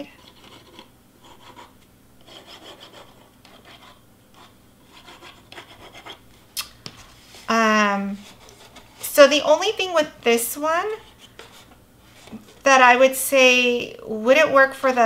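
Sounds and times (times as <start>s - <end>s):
cardstock rubbing and scraping: 0.0s - 6.2s, 6.8s - 9.3s.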